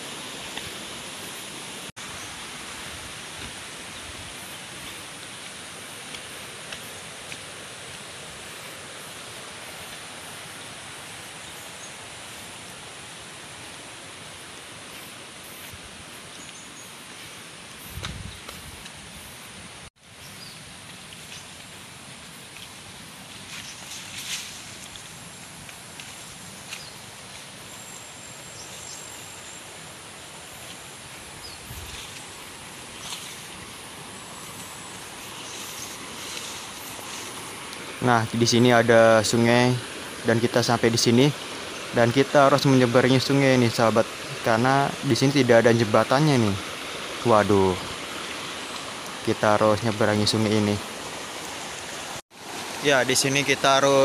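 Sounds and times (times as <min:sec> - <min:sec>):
rustling leaves: 0:00.0 - 0:54.0
footsteps on trail: 0:03.0 - 0:10.4, 0:20.8 - 0:27.7, 0:30.4 - 0:38.1
river rushing: 0:21.7 - 0:54.0.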